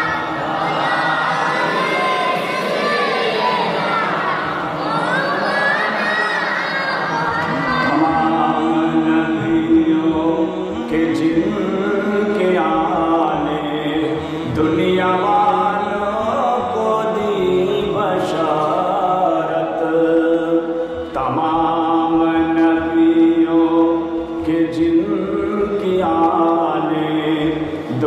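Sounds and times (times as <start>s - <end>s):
man chanting devotional song: 7.7s - 28.0s.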